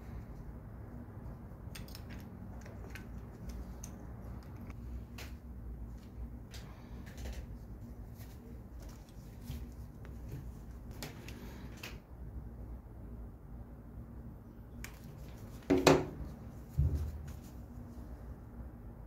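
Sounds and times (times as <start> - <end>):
steady low hum: 0.0 - 19.0
soft handling clicks and rustles: 1.2 - 12.0, 14.8 - 18.3.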